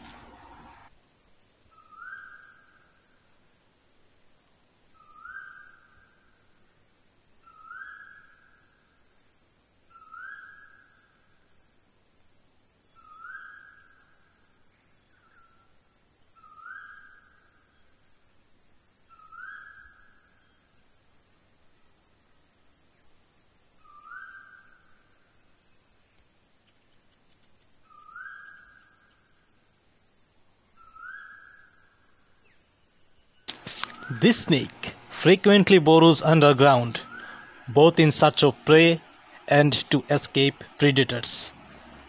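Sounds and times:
high-pitched insect drone: 0:33.5 - 0:42.0
whistled animal call: 0:37.0 - 0:37.7.

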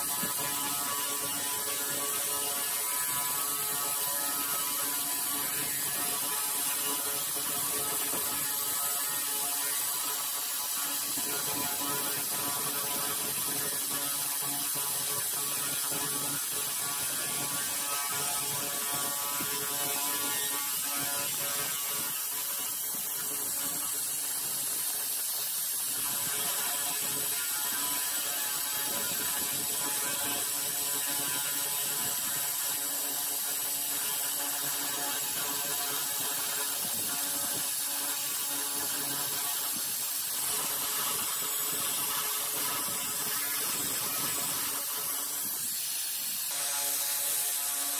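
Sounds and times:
laser cleaner crackling buzz: 0:00.0 - 0:47.9.

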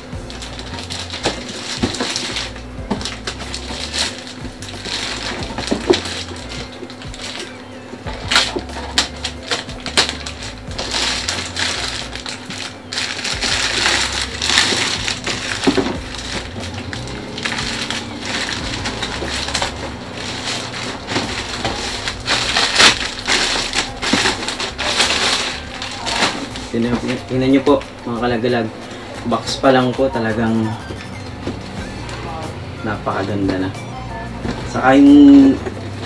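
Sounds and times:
packing tape tearing: 0:00.0 - 0:28.0
plastic wrapping crinkling: 0:00.0 - 0:30.3.

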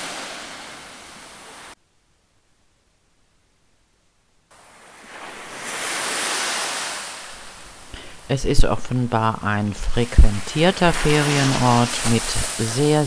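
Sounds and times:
surf breaking on rocks: 0:00.0 - 0:01.8, 0:04.6 - 0:13.0.

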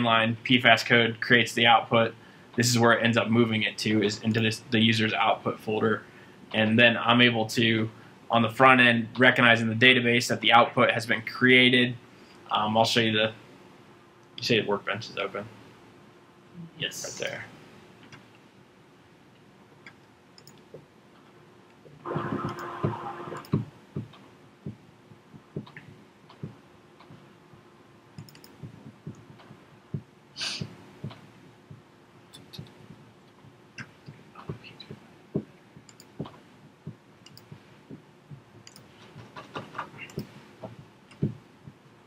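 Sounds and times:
computer mouse clicks: 0:19.8 - 0:20.8, 0:28.2 - 0:29.5, 0:35.8 - 0:36.4, 0:37.2 - 0:37.5, 0:38.6 - 0:40.4.

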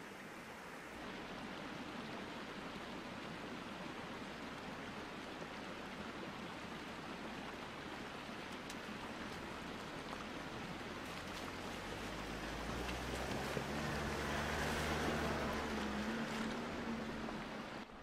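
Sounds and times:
stream running and splashing: 0:00.0 - 0:18.0
diesel engine low hum: 0:09.0 - 0:18.0.

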